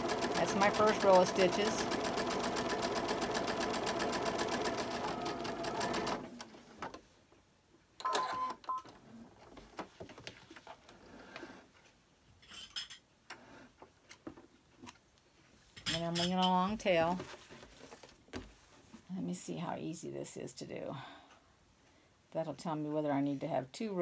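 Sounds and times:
sewing machine running: 0:00.0 - 0:06.4.

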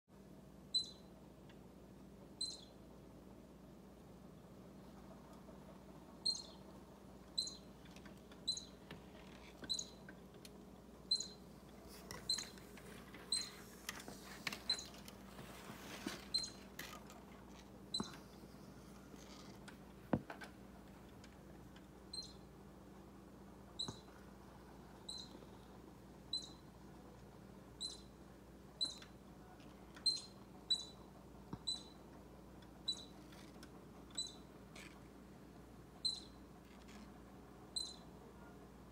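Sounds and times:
baby squirrel squeaking: 0:00.7 - 0:01.1, 0:02.4 - 0:02.8, 0:06.2 - 0:06.7, 0:07.3 - 0:07.8, 0:08.4 - 0:08.8, 0:09.4 - 0:10.1, 0:11.1 - 0:12.6, 0:13.2 - 0:13.7, 0:14.4 - 0:15.0, 0:16.3 - 0:16.7, 0:17.9 - 0:18.2, 0:22.0 - 0:22.5, 0:23.7 - 0:24.1, 0:25.0 - 0:25.6, 0:26.3 - 0:26.8, 0:27.7 - 0:28.2, 0:28.8 - 0:29.2, 0:30.0 - 0:32.1, 0:32.8 - 0:33.5, 0:34.1 - 0:34.9, 0:36.0 - 0:36.4, 0:37.7 - 0:38.1.

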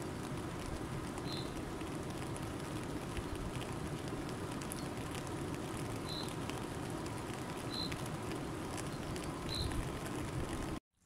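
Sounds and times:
bird chirping: 0:01.2 - 0:01.6.

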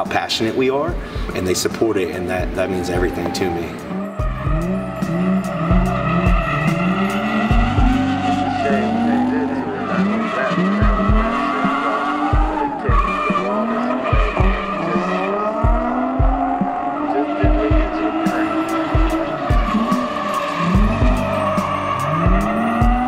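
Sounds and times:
car engine revving: 0:00.9 - 0:23.0
tyres squealing: 0:01.4 - 0:23.0
low thumps: 0:04.1 - 0:08.4, 0:10.8 - 0:14.8, 0:15.5 - 0:20.0.

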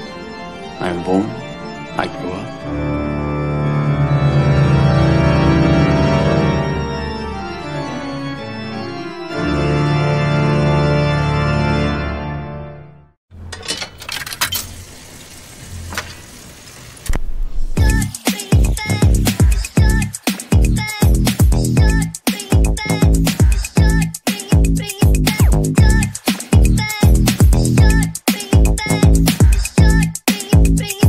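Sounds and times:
organ-like chords: 0:00.0 - 0:13.1.

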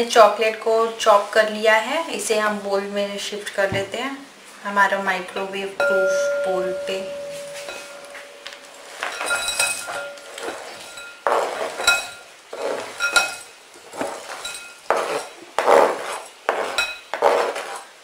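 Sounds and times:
glass bowl clinking: 0:05.4 - 0:15.4, 0:16.6 - 0:17.2
chocolate scraped off chopping board: 0:10.4 - 0:18.0.

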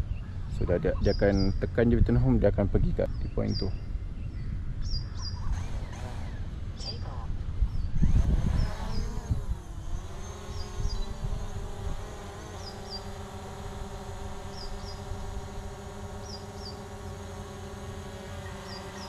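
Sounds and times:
drone propellers buzzing: 0:05.2 - 0:19.0.

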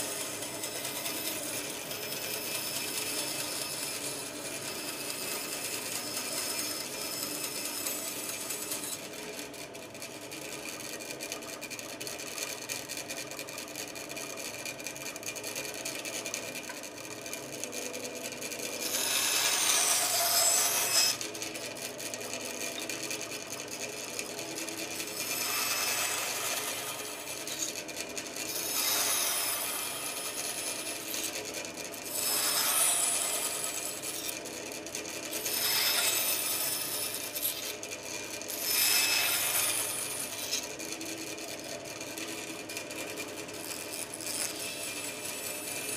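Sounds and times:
saw blade rasping through wood: 0:00.0 - 0:09.0, 0:18.8 - 0:21.3, 0:24.2 - 0:34.5, 0:35.2 - 0:40.8, 0:43.6 - 0:45.9
bandsaw motor hum: 0:00.0 - 0:10.4, 0:14.0 - 0:45.9.

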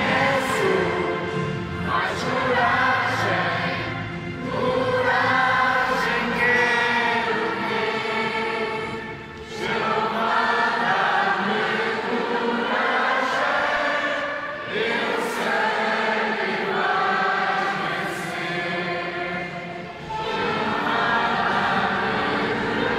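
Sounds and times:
huge audience singing a hymn: 0:00.0 - 0:22.9.

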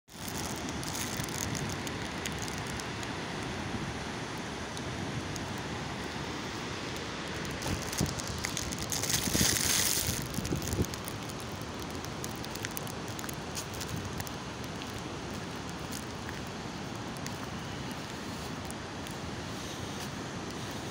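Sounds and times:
wind buffeting microphone: 0:07.3 - 0:20.9.

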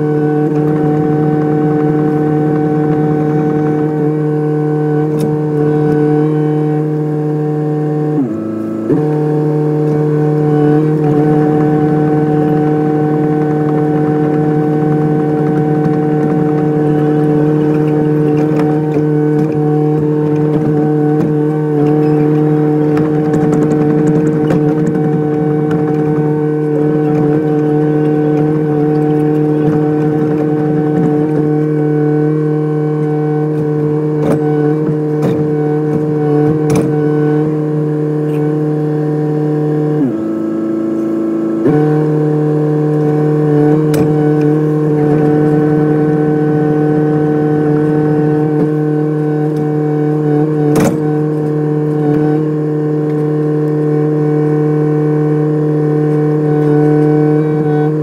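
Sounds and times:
excavator engine whining: 0:00.0 - 0:58.0.

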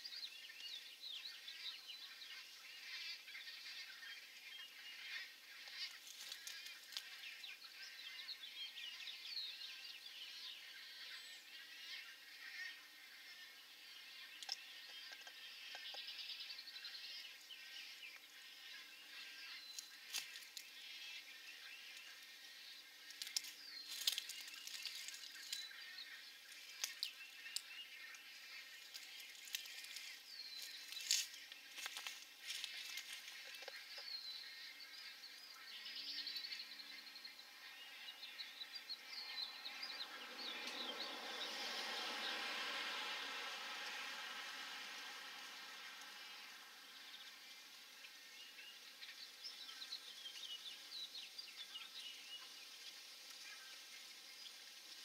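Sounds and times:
birds chirping and squealing: 0:00.0 - 0:54.6
steady high hiss: 0:08.8 - 0:55.0
bird clicks and chirps: 0:26.7 - 0:28.2.

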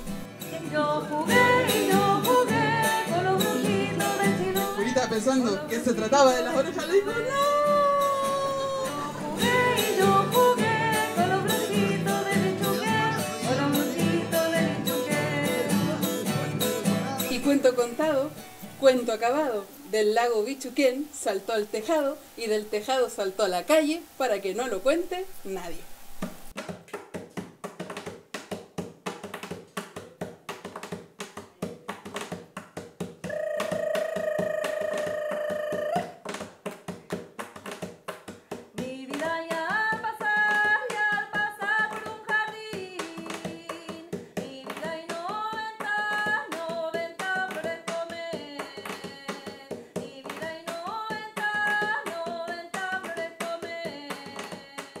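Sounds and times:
plucked string rhythm music: 0:00.0 - 0:19.0.

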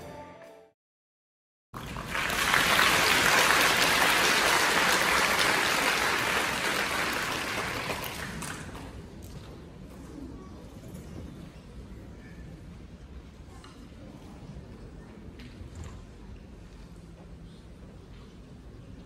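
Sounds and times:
audience applause: 0:01.8 - 0:08.8.

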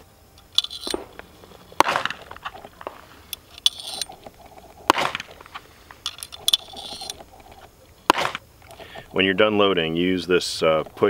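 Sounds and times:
metallic clinks of cartridges: 0:03.3 - 0:04.3, 0:06.0 - 0:07.2.

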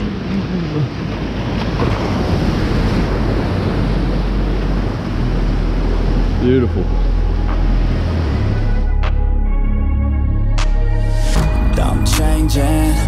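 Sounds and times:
ocean surf breaking: 0:00.0 - 0:09.2
wind rumble on microphone: 0:00.0 - 0:09.5.

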